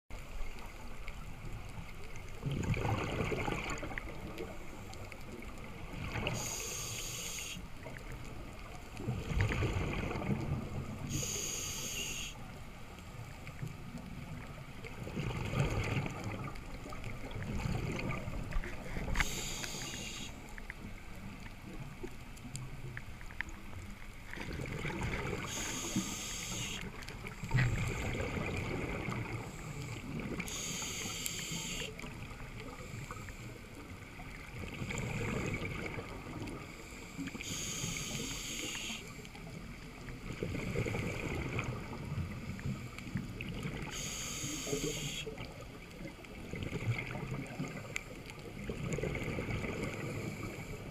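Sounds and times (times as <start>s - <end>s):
rumbling exhaled bubbles: 2.2s - 4.6s, 8.7s - 11.2s, 14.0s - 19.2s, 24.3s - 25.9s, 26.9s - 30.5s, 34.2s - 36.7s, 39.8s - 43.9s, 46.1s - 50.9s
regulator hiss on inhale: 6.3s - 7.7s, 11.0s - 12.6s, 19.0s - 20.6s, 25.4s - 28.1s, 29.5s - 32.1s, 36.6s - 39.4s, 42.6s - 45.4s, 49.9s - 50.9s.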